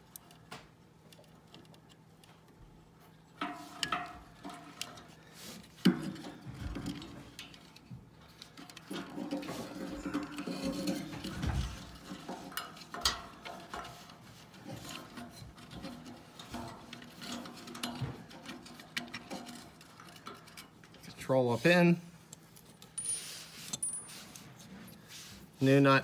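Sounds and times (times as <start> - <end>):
wires rubbing against sheet metal: 8.8 - 22.0.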